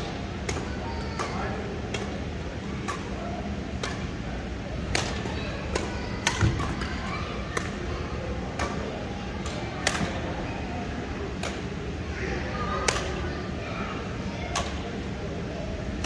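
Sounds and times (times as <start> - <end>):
rackets hitting shuttlecock: 0.4 - 10.4, 11.3 - 11.8, 12.8 - 13.2, 14.5 - 14.9.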